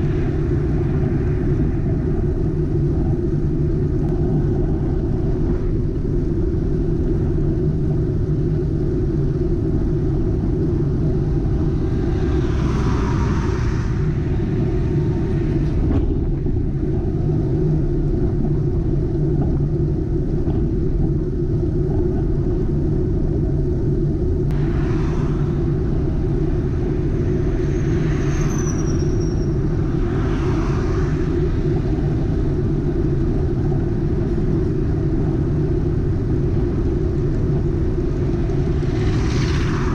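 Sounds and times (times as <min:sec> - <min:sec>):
wind and road noise: 0:00.0 - 0:39.9
motor vehicles passing: 0:10.0 - 0:18.2, 0:24.5 - 0:39.9.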